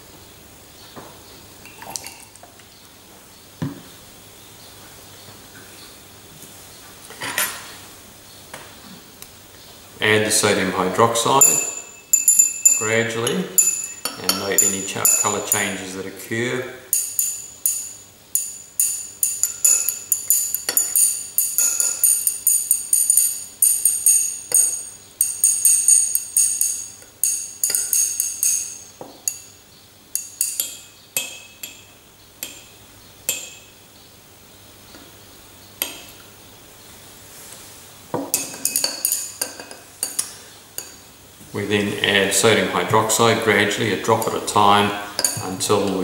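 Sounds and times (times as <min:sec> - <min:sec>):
glass rod clinking in beaker: 0:11.4 - 0:15.8, 0:16.9 - 0:29.5, 0:30.2 - 0:31.8, 0:38.3 - 0:41.0, 0:45.2 - 0:45.6.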